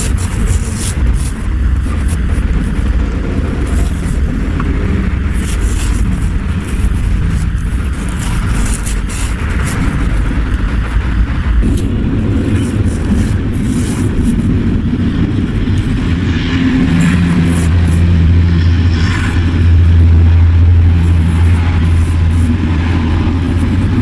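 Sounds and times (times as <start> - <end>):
sheets scraping and rustling: 0.0 - 11.0, 11.6 - 14.8
low rumble: 0.0 - 24.0.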